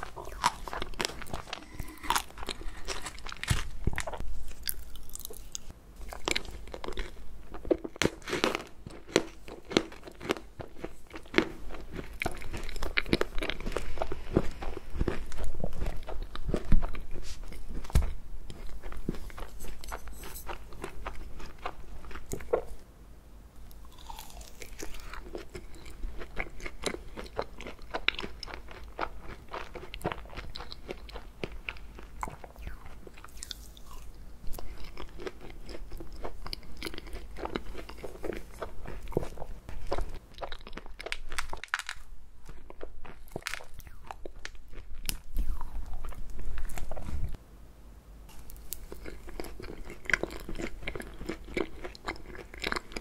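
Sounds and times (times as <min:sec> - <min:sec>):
crunching and chewing: 0:00.0 - 0:22.8, 0:23.7 - 0:47.4, 0:48.3 - 0:53.0
fork digging into frozen cake: 0:19.1 - 0:20.6.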